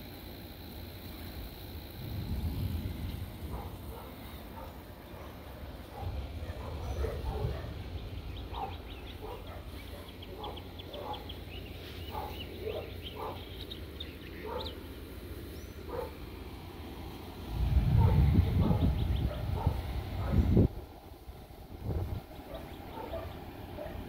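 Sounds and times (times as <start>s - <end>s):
wind rumble on microphone: 1.4s - 10.5s, 17.3s - 23.8s.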